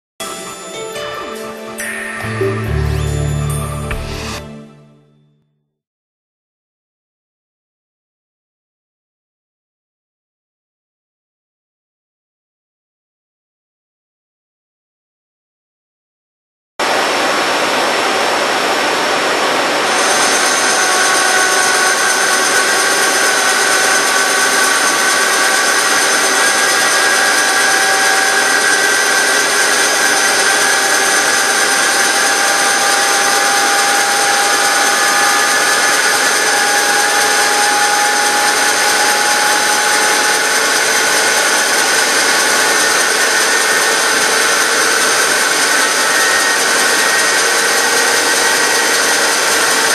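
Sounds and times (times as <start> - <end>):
high steady whining tones: 16.8 - 49.9
lathe cutting metal: 16.8 - 49.9.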